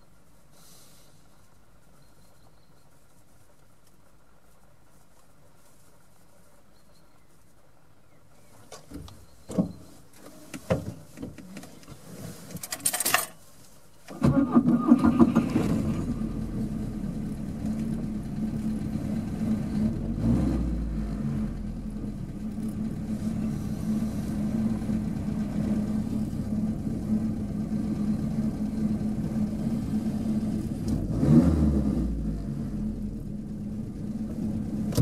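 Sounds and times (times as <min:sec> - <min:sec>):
rustle: 0:00.0 - 0:35.0
car engine starting and idling: 0:14.0 - 0:35.0.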